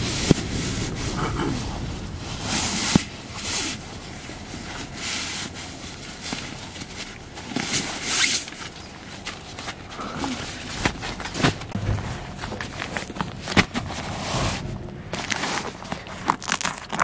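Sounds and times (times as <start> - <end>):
nylon gear rustling: 2.2 - 17.0.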